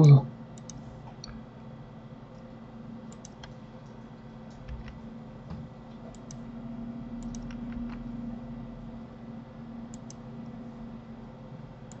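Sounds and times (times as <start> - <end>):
steady low hum: 0.0 - 12.0
mouse and keyboard clicking: 7.2 - 8.0.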